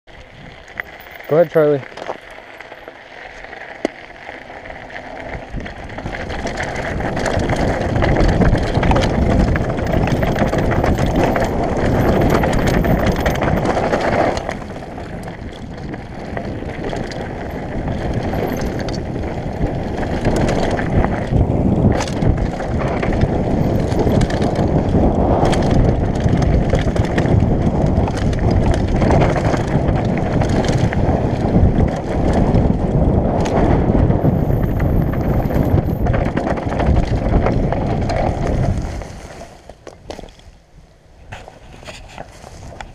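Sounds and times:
bike tyre and frame noise: 0:00.1 - 0:42.9
wind buffeting microphone: 0:04.6 - 0:39.3
bike knocking over bumps: 0:06.0 - 0:39.1.

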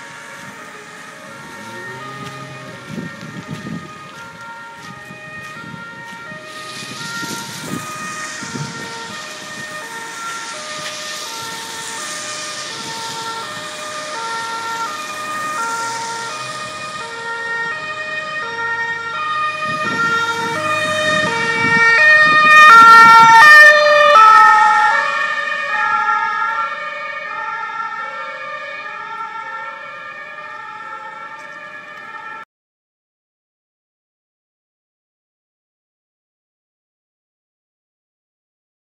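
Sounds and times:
road noise: 0:00.0 - 0:32.4
two-tone emergency sirens: 0:00.0 - 0:32.5.

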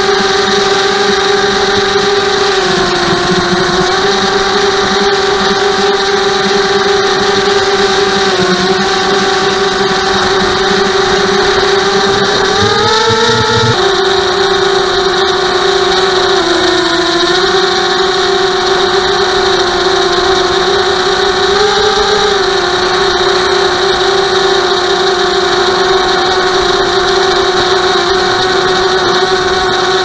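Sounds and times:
drone propellers whining: 0:00.0 - 0:30.0.

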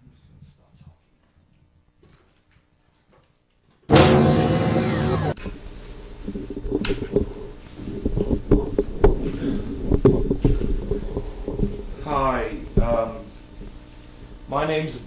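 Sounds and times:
steady low hum: 0:03.9 - 0:15.0.

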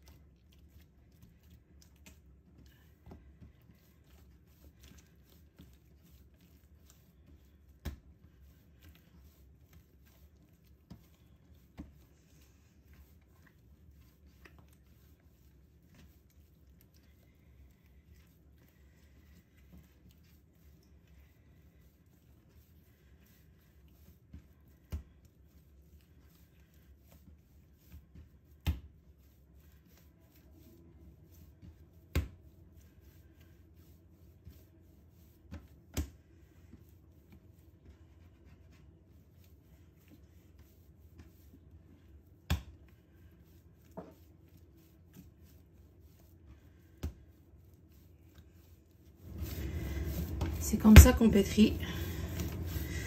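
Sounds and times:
dough slapping: 0:00.0 - 0:12.1, 0:21.8 - 0:53.0
dough kneaded by hand: 0:00.0 - 0:53.0.

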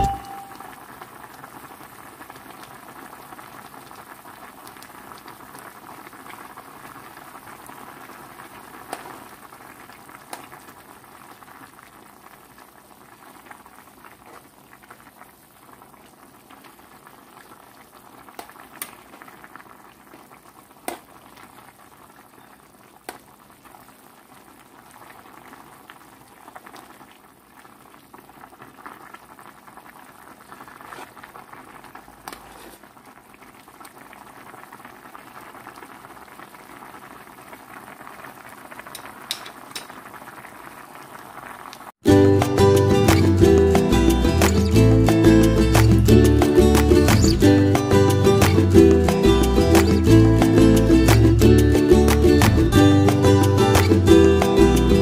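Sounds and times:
soup boiling and bubbling: 0:00.3 - 0:49.0
spoon knocking pot: 0:39.3 - 0:39.9.

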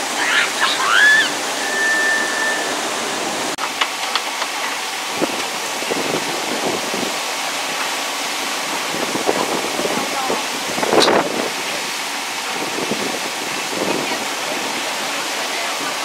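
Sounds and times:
water rushing and spraying: 0:00.0 - 0:16.0
high whistle: 0:00.3 - 0:03.5.

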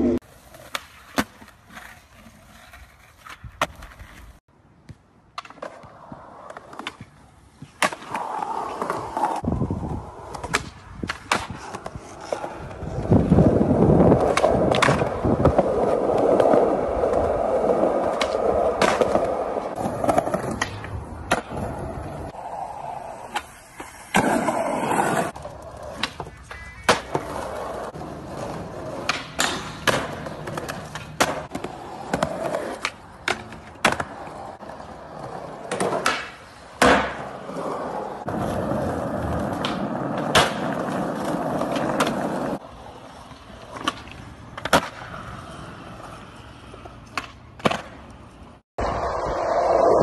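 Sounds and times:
skateboard wheels rolling on pavement: 0:00.0 - 0:50.0
skateboard clacks on concrete: 0:18.0 - 0:21.6, 0:23.3 - 0:34.4, 0:35.3 - 0:42.6.

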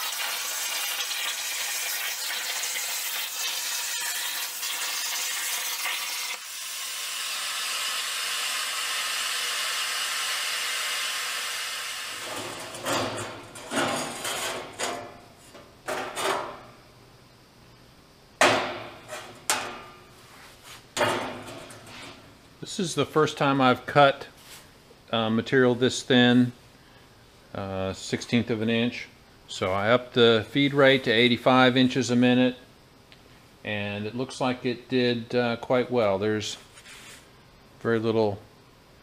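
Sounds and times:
plasma cutter hissing: 0:00.0 - 0:13.5
steel sheet rattling and clanking: 0:12.2 - 0:15.2, 0:15.8 - 0:16.6, 0:21.0 - 0:22.2.

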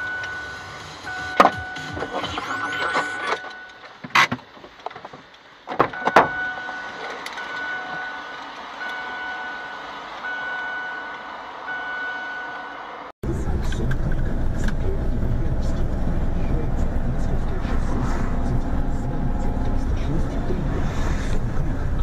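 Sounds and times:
electronic beeping: 0:00.0 - 0:03.8, 0:05.9 - 0:12.5.

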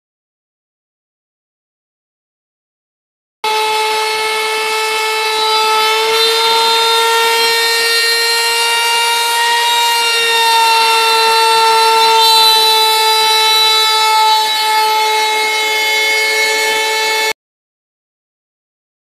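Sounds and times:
router bit milling wood: 0:03.4 - 0:17.4
router spindle high whine: 0:03.4 - 0:17.4.

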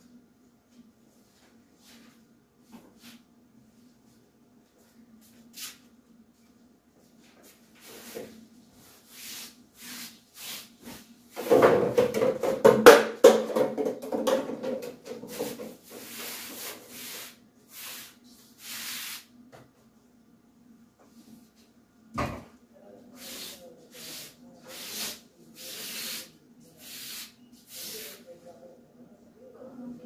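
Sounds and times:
rubbing and scraping on a table: 0:07.4 - 0:12.6, 0:14.0 - 0:19.3.

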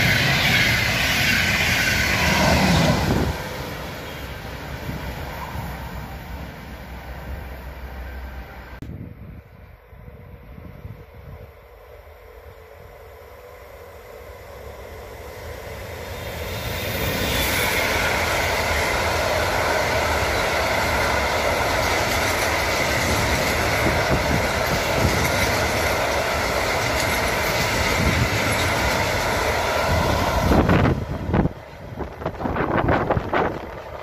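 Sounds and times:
train wheels rumbling on rails: 0:00.0 - 0:34.0
wind buffeting microphone: 0:02.0 - 0:03.9, 0:08.8 - 0:11.6, 0:17.8 - 0:34.0.

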